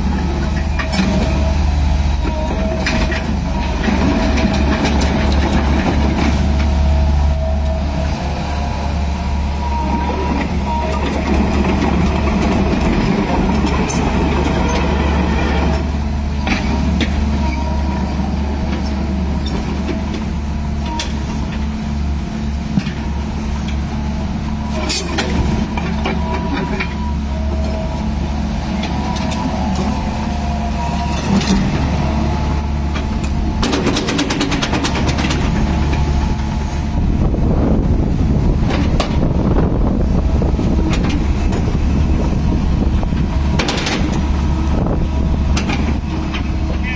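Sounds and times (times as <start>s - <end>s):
excavator engine running: 0.0s - 46.9s
track links clanking: 9.8s - 46.9s.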